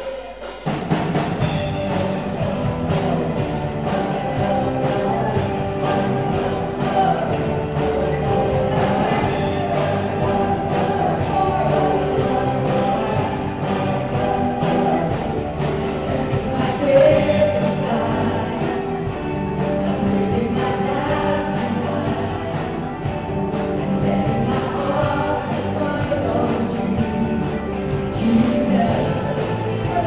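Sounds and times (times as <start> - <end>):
bright percussion strokes: 0.0 - 20.8
band with drums guitar keyboard: 0.0 - 30.0
singers singing together: 1.4 - 30.0.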